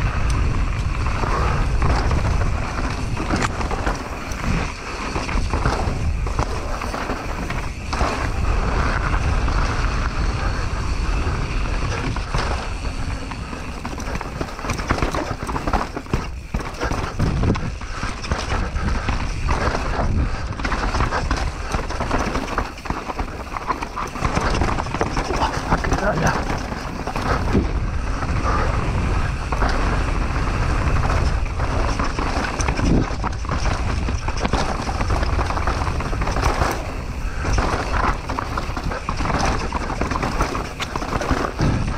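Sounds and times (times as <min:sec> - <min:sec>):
bike knocking and rattling on stones: 0:00.0 - 0:41.9
tyres rumbling over dirt and rock: 0:00.0 - 0:41.9
wind on microphone: 0:00.0 - 0:41.9.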